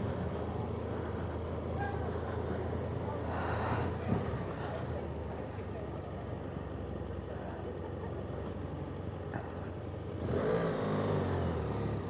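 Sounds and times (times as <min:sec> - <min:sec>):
motorcycle engine revving: 0:10.1 - 0:12.0.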